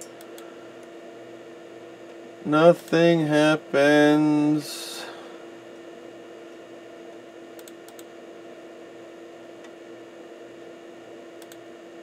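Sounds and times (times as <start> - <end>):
steady electrical hum: 0.0 - 12.0
computer mouse button clicks: 11.4 - 11.6.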